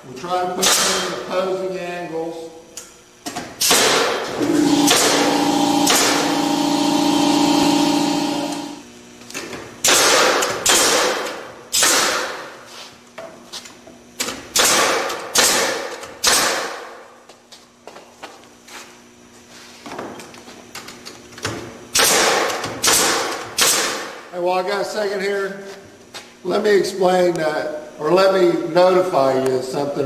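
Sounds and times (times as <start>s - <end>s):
nail gun shots: 0.6s - 1.2s, 3.6s - 6.4s, 9.8s - 12.5s, 14.5s - 17.0s, 21.9s - 24.3s
motor hum: 2.8s - 12.5s.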